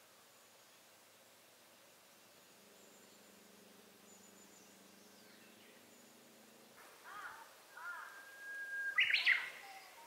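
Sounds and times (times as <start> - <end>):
bird singing: 2.1 - 10.0.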